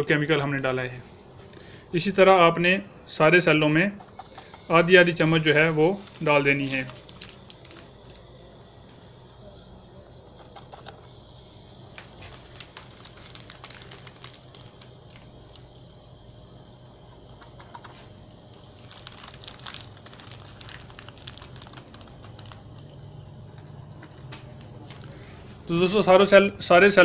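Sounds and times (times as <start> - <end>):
paper packet crinkling: 4.0 - 8.3, 11.8 - 15.8, 17.5 - 23.0, 24.0 - 25.3
small clicks and crackles: 6.0 - 8.2, 11.9 - 15.8, 18.7 - 23.0, 23.6 - 25.2.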